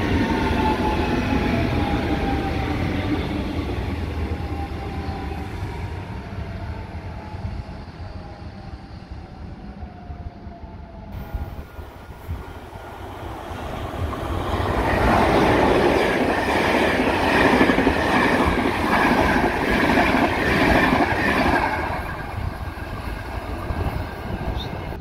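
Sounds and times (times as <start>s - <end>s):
train passing at speed: 0.0s - 25.0s
wheel and rail noise: 11.2s - 25.0s.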